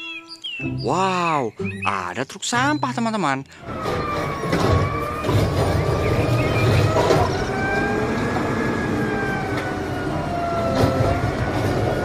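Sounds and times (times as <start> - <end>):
truck engine running: 3.5 - 12.0
hydraulic arm whining: 3.6 - 12.0
bin and arm knocking: 3.8 - 7.8.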